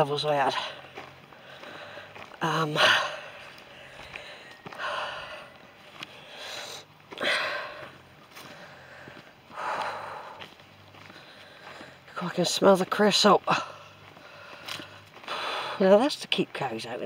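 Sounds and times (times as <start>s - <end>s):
man breathing hard: 1.3s - 12.1s, 13.8s - 15.8s.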